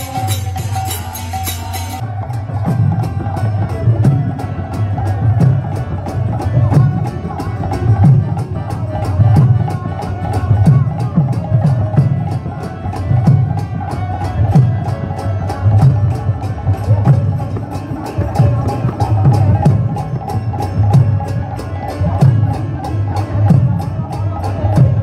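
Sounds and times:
hand cymbals clashing: 0.0s - 2.4s
drum beats: 0.0s - 25.0s
harmonium drone: 0.0s - 25.0s.

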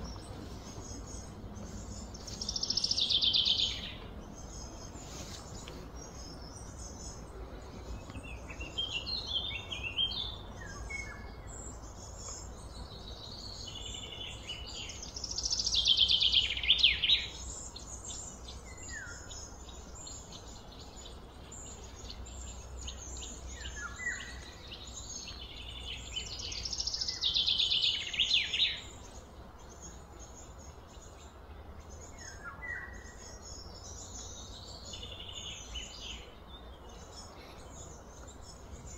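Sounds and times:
steady low hum: 0.0s - 15.5s
birds chirping: 0.0s - 38.9s.

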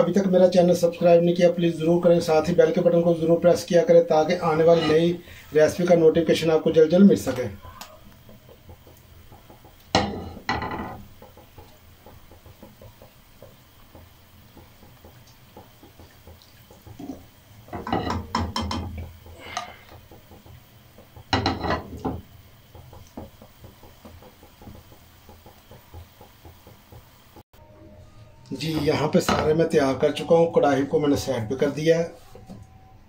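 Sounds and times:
faint oil sizzle: 0.0s - 27.5s
metal spoon scraping a pan: 4.3s - 5.4s.

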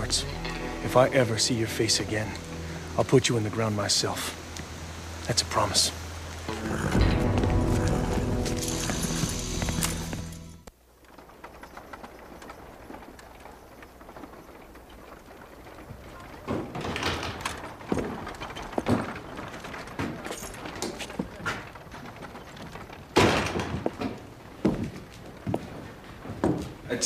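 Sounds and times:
footsteps on wooden boards: 6.3s - 27.0s
wooden door banging open: 16.2s - 24.9s.

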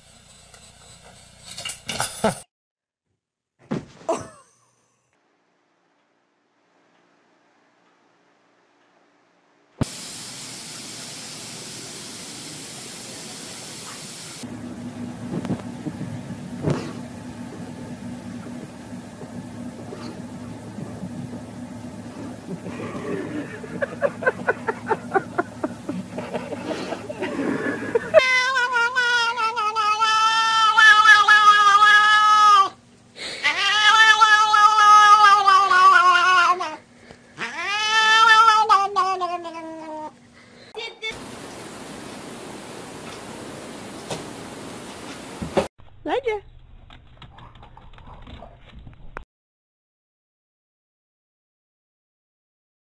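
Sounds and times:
loud spraying hiss: 9.8s - 14.4s
car engine hum: 14.5s - 27.4s
cat yowling: 28.1s - 32.8s, 33.4s - 36.8s, 37.4s - 40.1s.

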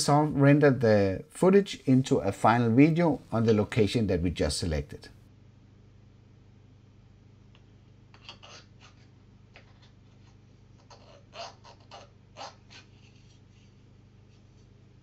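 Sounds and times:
room hum: 0.0s - 15.0s.

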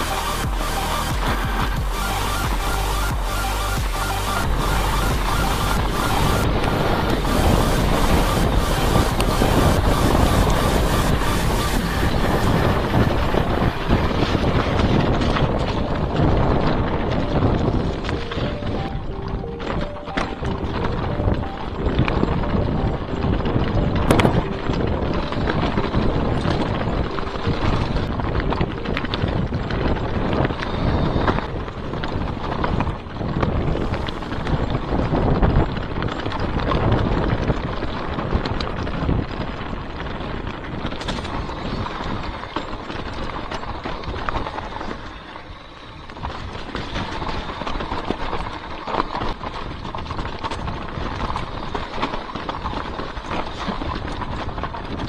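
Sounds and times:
wind buffeting microphone: 0.0s - 55.0s
bike rattling over rocks: 12.1s - 55.0s.

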